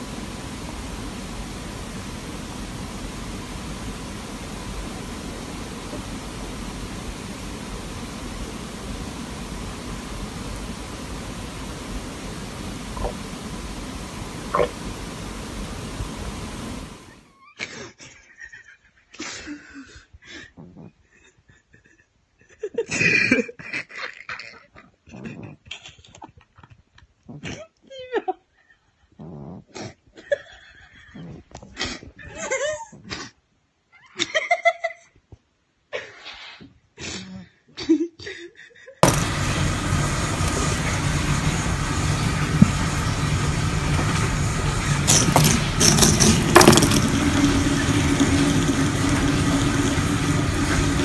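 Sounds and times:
loud mechanical humming noise: 0.0 - 17.3, 39.0 - 51.0.

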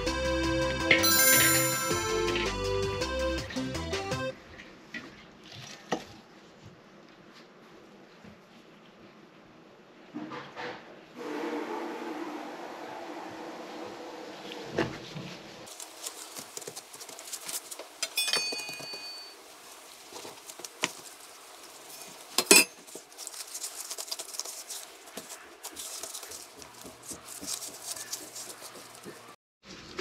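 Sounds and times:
hands handling dough on metal tray: 19.7 - 29.4.

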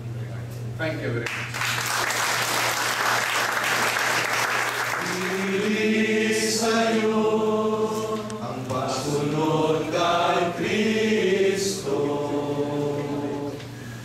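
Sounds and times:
audience applauding: 1.2 - 5.8
group of voices singing: 4.9 - 13.8.

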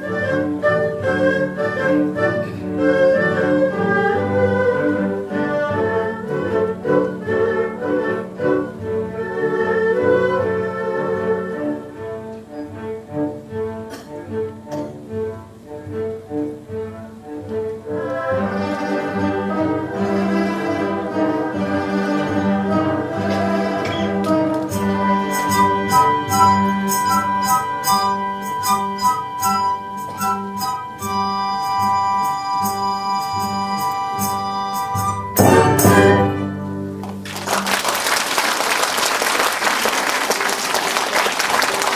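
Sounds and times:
traditional orchestra playing: 0.0 - 38.3
bowed strings: 11.7 - 37.0
sharp percussion strikes: 24.7 - 36.4
audience applause: 37.0 - 41.9.

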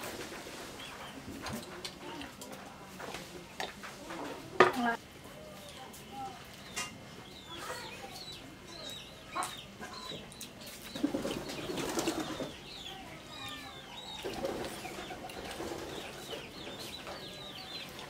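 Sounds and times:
small birds chirping: 5.4 - 18.0
chicken clucking: 7.3 - 12.8.

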